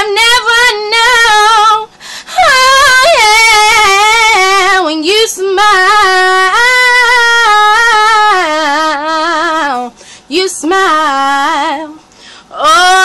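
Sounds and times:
singer breath: 0:01.9 - 0:02.4, 0:09.9 - 0:10.3, 0:12.1 - 0:12.6.

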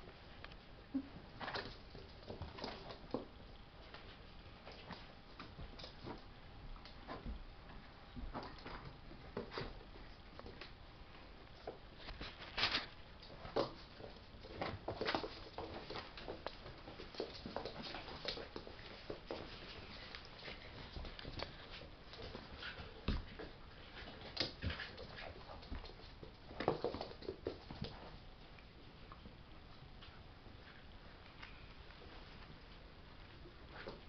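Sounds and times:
paws scrabbling on fabric: 0:11.7 - 0:28.2.

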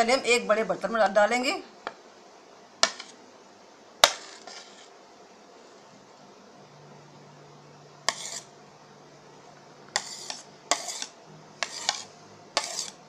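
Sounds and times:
scraping off a plate: 0:04.0 - 0:05.0, 0:08.1 - 0:08.6, 0:09.9 - 0:13.0.

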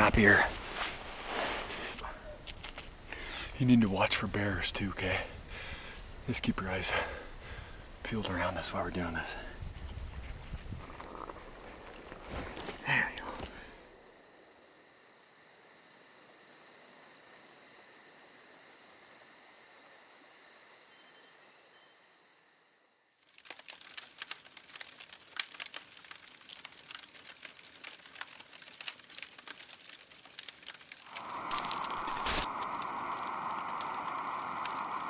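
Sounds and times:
dry crackles and rustles: 0:00.0 - 0:04.2, 0:06.4 - 0:13.9, 0:23.2 - 0:35.0
crickets chirping: 0:00.0 - 0:23.9, 0:26.2 - 0:35.0.

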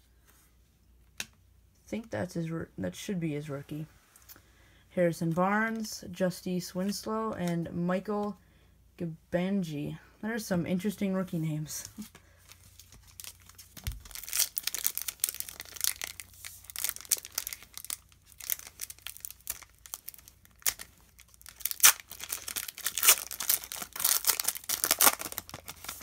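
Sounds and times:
foil pack crinkling and tearing: 0:12.4 - 0:26.0.

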